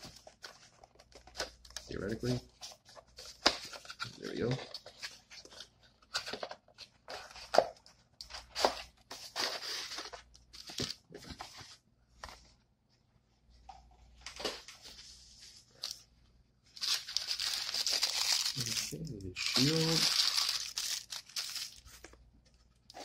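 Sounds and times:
cardboard packaging tearing: 16.8s - 22.0s
packing wrap crinkling: 16.8s - 22.2s.

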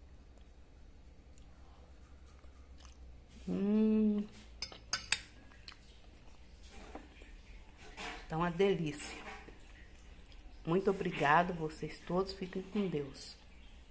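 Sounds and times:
faint chewing: 0.0s - 8.2s
person humming mmm: 3.4s - 4.4s
metal fork clinking on plate: 4.6s - 5.3s.

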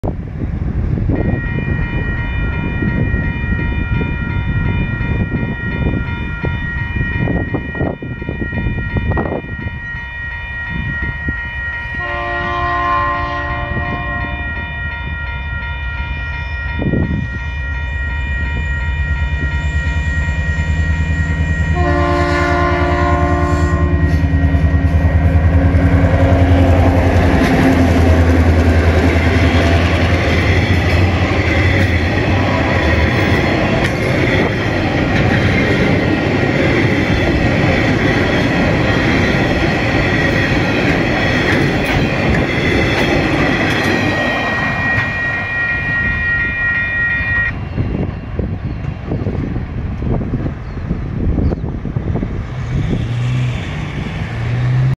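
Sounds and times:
locomotive horn blasts: 1.2s - 3.6s, 11.8s - 15.4s, 16.5s - 33.7s, 44.4s - 47.6s.

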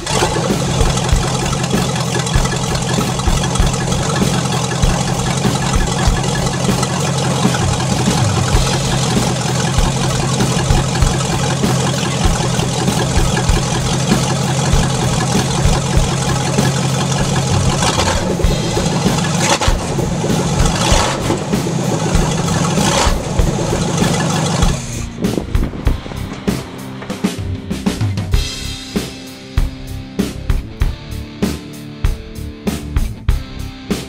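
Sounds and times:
car engine idling: 0.0s - 31.3s.

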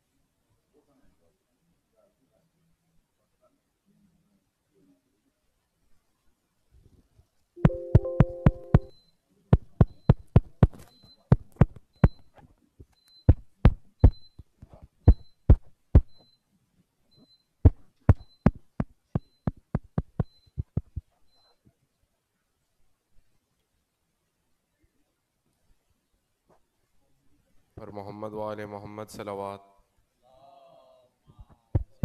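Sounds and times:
faint high beep: 7.6s - 9.2s.

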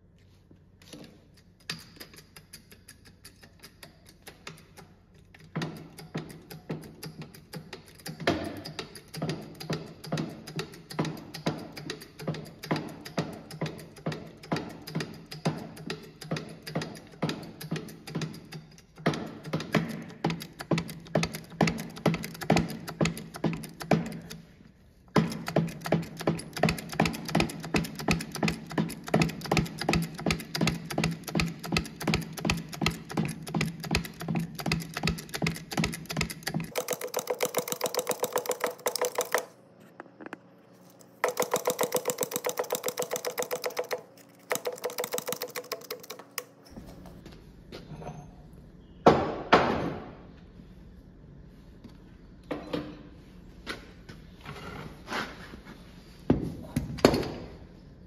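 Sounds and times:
hydraulic jack clicking: 25.2s - 39.6s, 41.0s - 46.6s.

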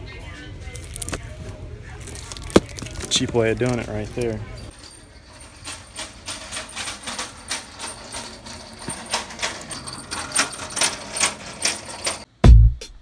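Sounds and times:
plastic cases clacking: 0.8s - 1.2s, 2.0s - 4.4s
music with heavy beat: 12.4s - 13.0s.

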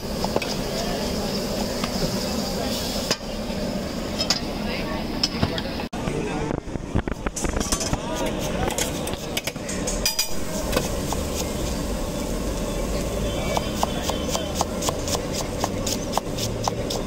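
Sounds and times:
knife chopping onion on board: 13.5s - 17.0s.

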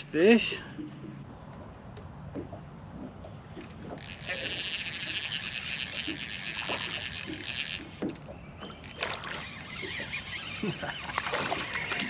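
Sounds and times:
fishing reel buzzing: 3.5s - 12.0s.

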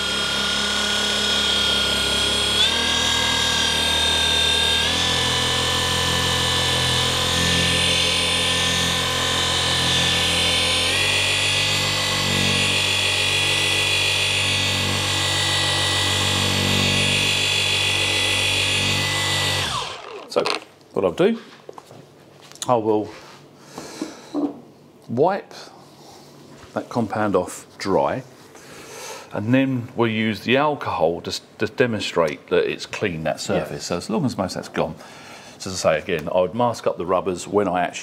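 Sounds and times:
orbital polisher motor whine: 0.0s - 20.6s.

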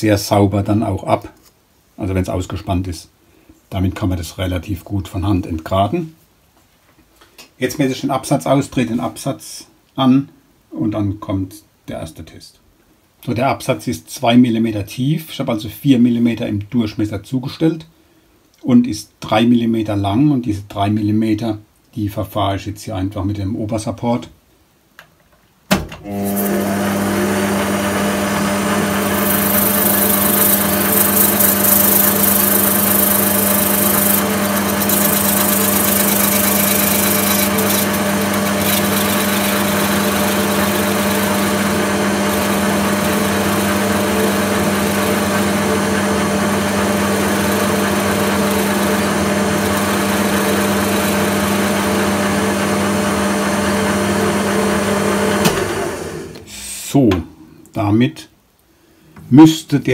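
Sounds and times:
lathe motor humming: 26.2s - 56.5s.

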